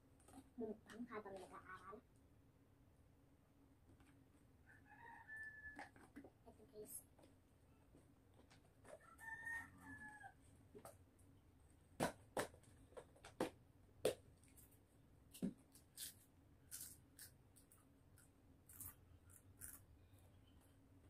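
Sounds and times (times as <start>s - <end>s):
potato chips crunching: 15.8s - 19.9s.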